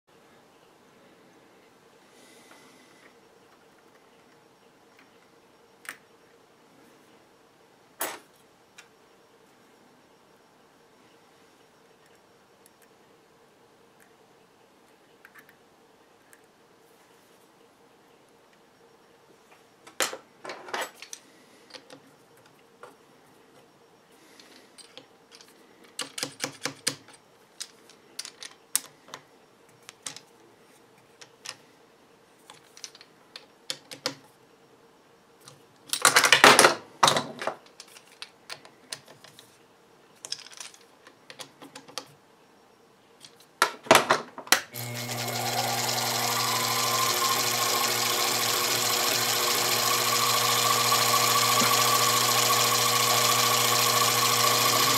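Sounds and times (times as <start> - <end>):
mill spindle motor whining: 44.8 - 54.9.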